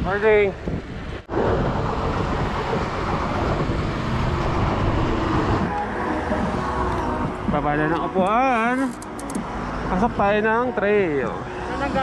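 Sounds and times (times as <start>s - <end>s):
wind rushing on microphone: 0.0s - 8.2s
bike tyres road rumble: 0.6s - 7.9s.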